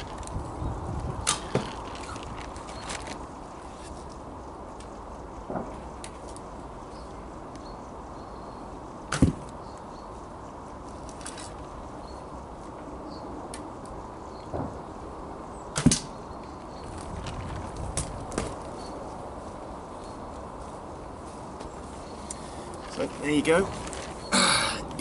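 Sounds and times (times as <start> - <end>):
arrow striking: 9.1 - 9.5, 15.8 - 16.1.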